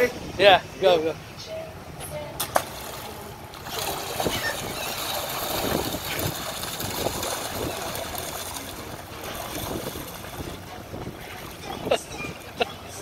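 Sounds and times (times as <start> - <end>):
water splashing and churning: 2.4 - 13.0.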